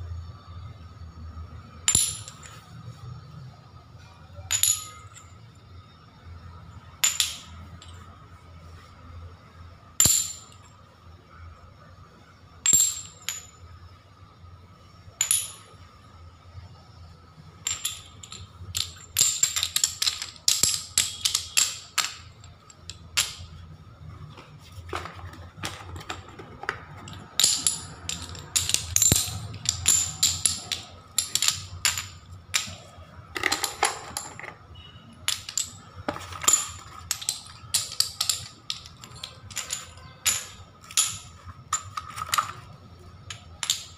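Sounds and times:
ceramic tiles clicking together: 17.6 - 23.6, 24.9 - 34.6, 35.2 - 43.9.

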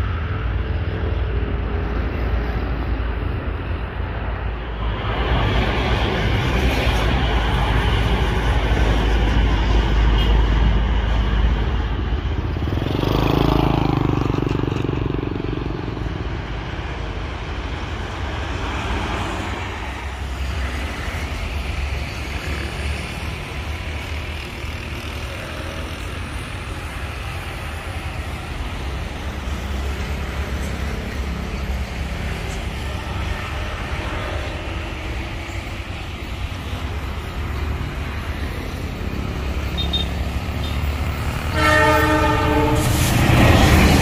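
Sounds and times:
passing cars and trucks: 0.0 - 44.0
loud vehicle passing: 4.8 - 44.0.

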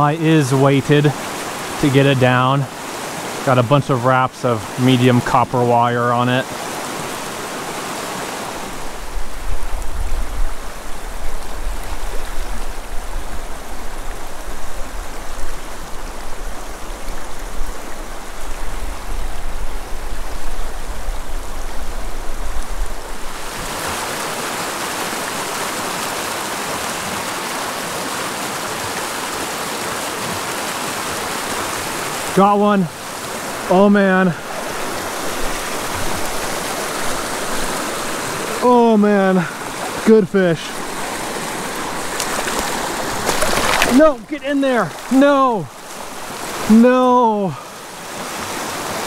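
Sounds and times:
creek water rushing over rocks: 0.0 - 49.0
wind rumbling on microphone: 8.2 - 24.2.

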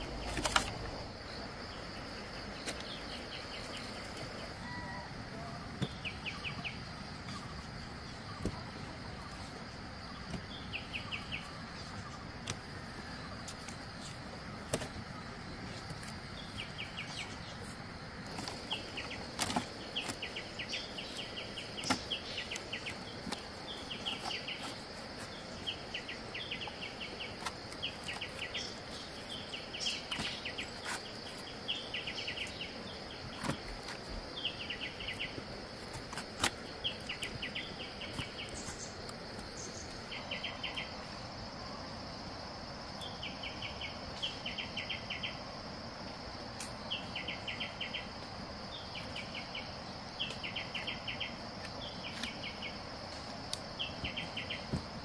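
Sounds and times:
insects chirping: 0.0 - 55.0
steady high insect buzz: 0.0 - 55.0.

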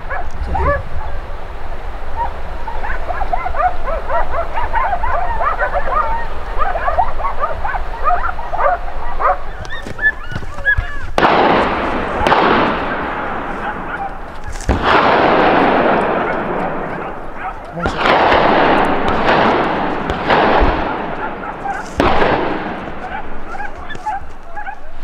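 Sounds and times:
dogs barking and yelping: 0.0 - 1.2, 2.1 - 25.0
echoing gunshots: 11.2 - 24.7.

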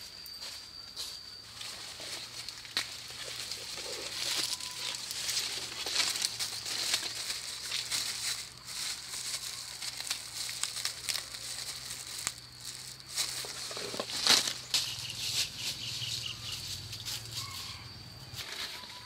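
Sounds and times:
rustling and crinkling: 0.4 - 17.8.

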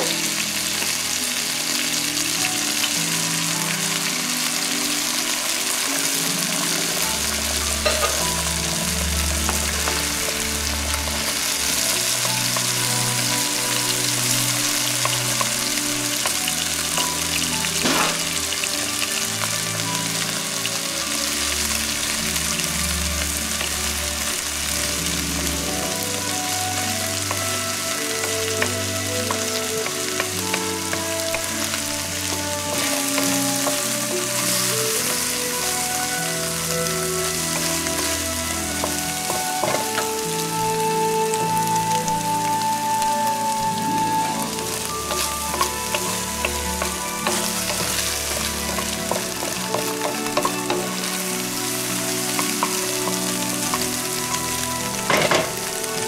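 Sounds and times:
chicken sizzling in hot oil: 0.0 - 56.0
wooden spoon stirring: 28.0 - 36.0, 44.3 - 55.7.

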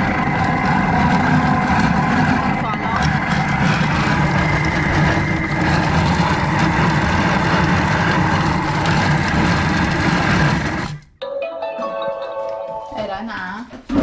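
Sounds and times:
kitchen machine motor running: 0.0 - 11.2.

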